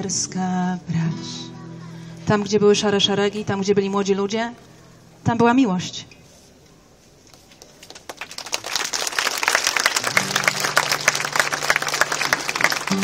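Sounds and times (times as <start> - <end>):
crowd clapping: 7.3 - 13.0.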